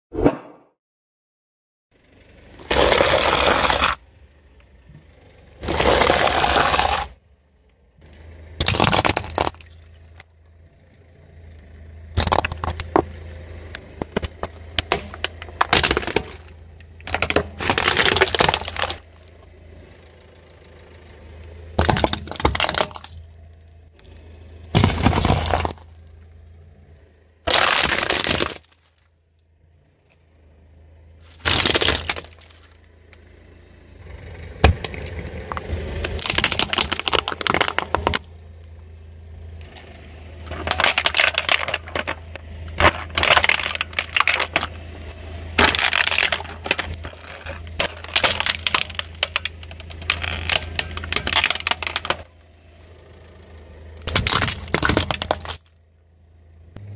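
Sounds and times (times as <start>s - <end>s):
car tyre crushing objects: 2.4s - 10.6s, 11.8s - 56.9s.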